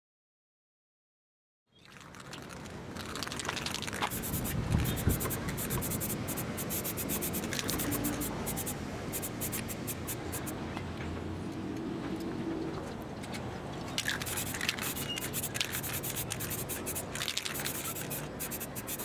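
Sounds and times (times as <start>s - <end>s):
spray paint can hissing: 3.0s - 10.6s, 14.0s - 19.0s.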